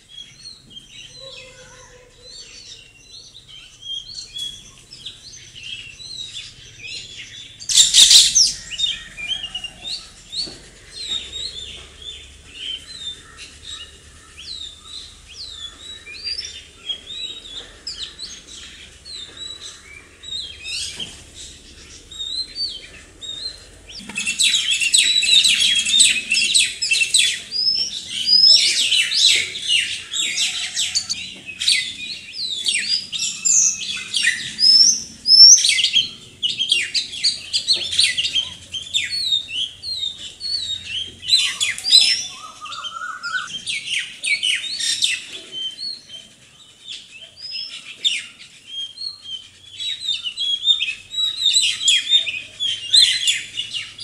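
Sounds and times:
parakeets chirping: 6.2s - 9.8s, 17.3s - 44.1s.

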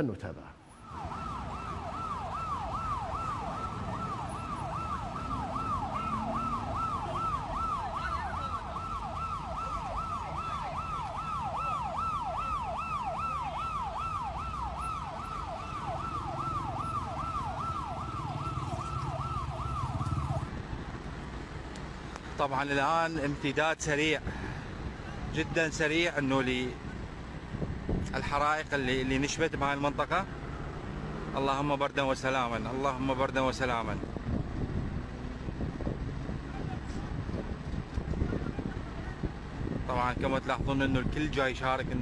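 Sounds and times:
low street rumble: 0.0s - 42.0s
emergency siren yelping: 0.7s - 20.5s.

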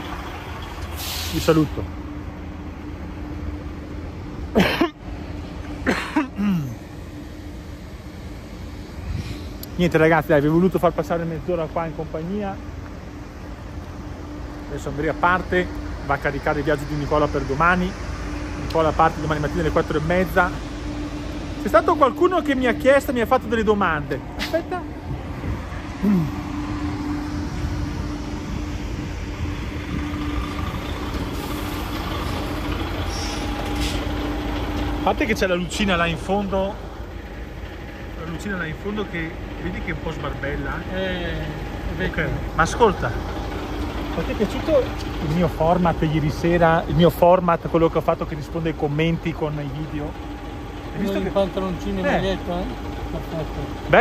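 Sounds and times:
truck engine rumbling: 0.0s - 54.0s
steady low hum: 1.8s - 54.0s
person coughing: 4.5s - 5.0s, 5.8s - 6.8s, 26.0s - 26.4s
short vocal sound: 26.0s - 26.5s.

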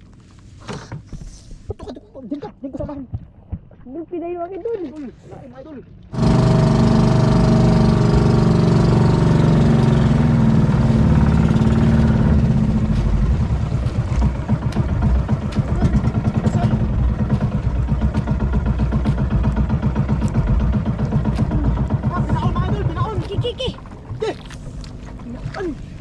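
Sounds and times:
boat engine running: 5.6s - 26.0s.

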